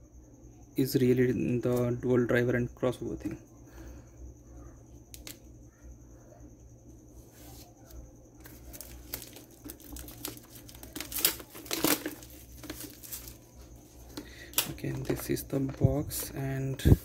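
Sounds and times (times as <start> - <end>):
plastic shrink wrap tearing and crinkling: 8.4 - 13.5.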